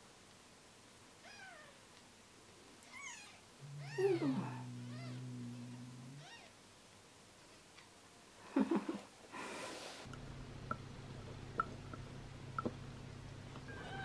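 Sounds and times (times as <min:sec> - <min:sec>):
kitten mewing: 0:02.9 - 0:06.5
low steady drone: 0:03.6 - 0:06.3.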